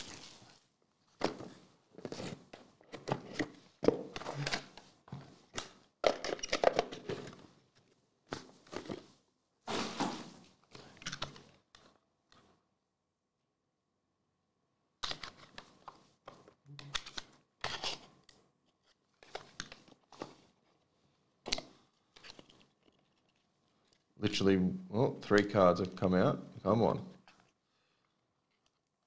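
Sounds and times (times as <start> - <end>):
cardboard box and cards rustling: 0.0 - 5.3, 9.7 - 11.4, 21.5 - 23.5.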